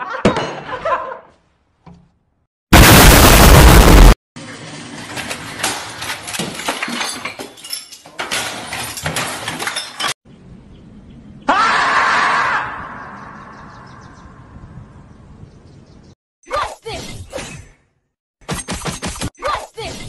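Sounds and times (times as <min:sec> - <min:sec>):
banging clattering and breaking: 0:04.9 - 0:10.2.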